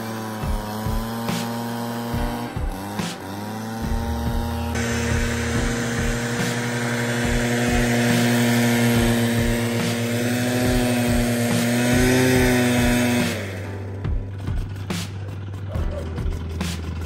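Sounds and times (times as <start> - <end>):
leaf blower engine running: 0.0 - 17.0.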